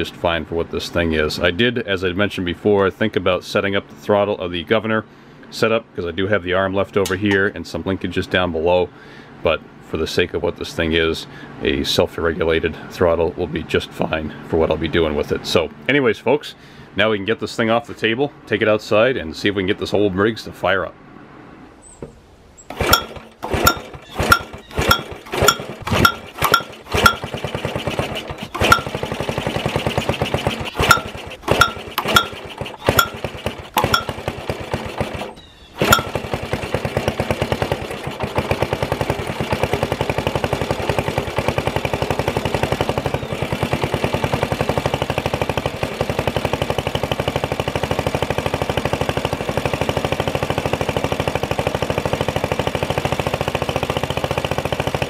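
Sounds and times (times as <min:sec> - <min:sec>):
loud sharp engine pops: 0:22.7 - 0:40.8
small engine running unevenly: 0:22.7 - 0:55.0.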